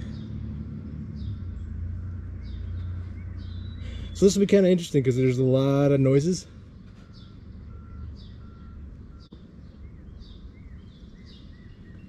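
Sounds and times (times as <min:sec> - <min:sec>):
birds chirping: 0:00.0 - 0:12.0
reversing alarm beeps: 0:07.0 - 0:09.4.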